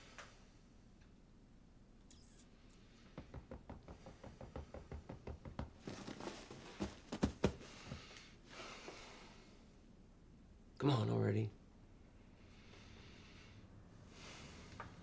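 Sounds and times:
fingers drumming on a couch armrest: 3.2s - 8.0s.

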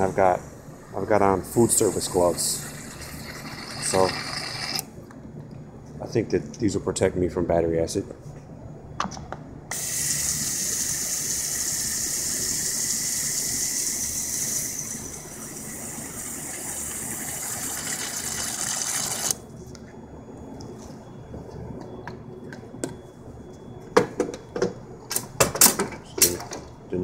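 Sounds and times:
water gushing through a nozzle: 17.4s - 19.4s.

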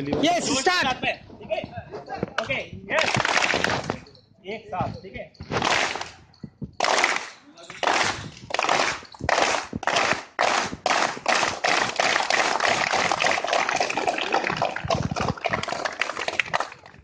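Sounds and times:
crowd clapping: 3.0s - 4.0s, 5.6s - 6.1s, 6.8s - 17.0s.

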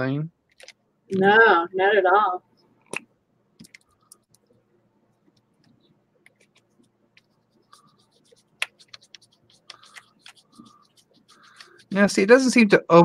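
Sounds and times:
paint stick scratching on paper: 6.3s - 12.6s
fingers rubbing paper: 6.4s - 12.5s.

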